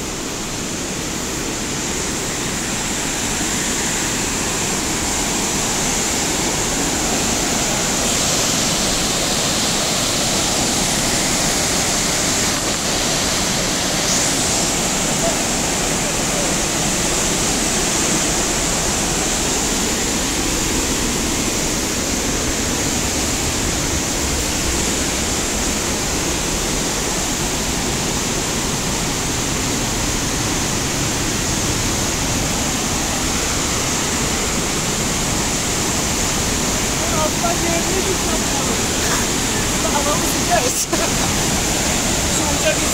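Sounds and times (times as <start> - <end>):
waterfall and stream rushing: 0.0 - 42.9.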